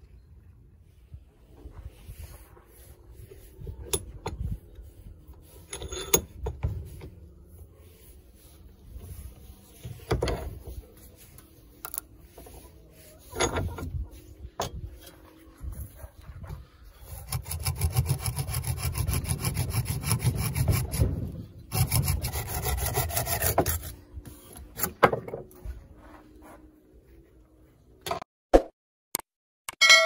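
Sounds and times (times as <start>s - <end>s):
hand saw cutting wood: 17.0s - 24.0s.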